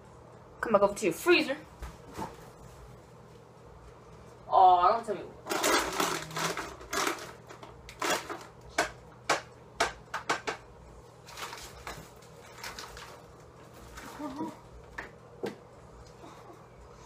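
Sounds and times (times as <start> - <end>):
rummaging in a refrigerator: 5.5 - 8.5, 11.2 - 15.1.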